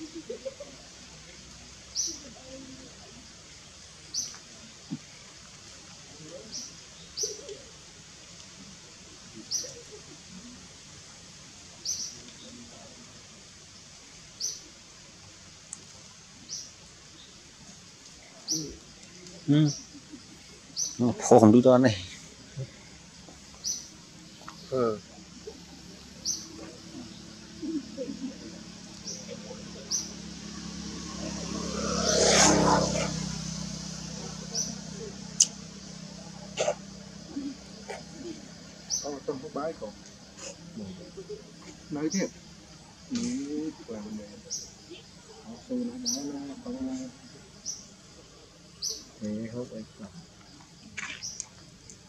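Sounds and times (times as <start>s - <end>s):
steady outdoor hiss: 0.0s - 52.0s
vehicle passing by: 18.5s - 50.3s
bird high chirp: 29.0s - 30.2s.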